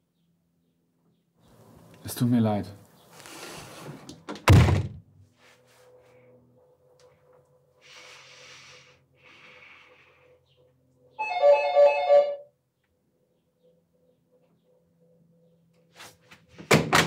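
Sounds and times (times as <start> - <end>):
soft hissing: 7.8 - 10.2
electronic doorbell chime: 11.2 - 12.5.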